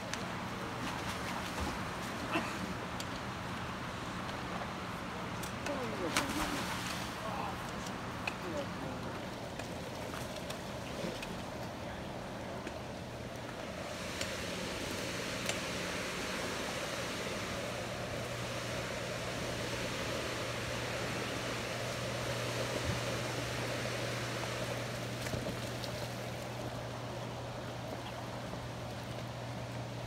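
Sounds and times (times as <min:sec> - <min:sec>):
low steady hum: 0:00.0 - 0:30.0
water rushing: 0:13.4 - 0:30.0.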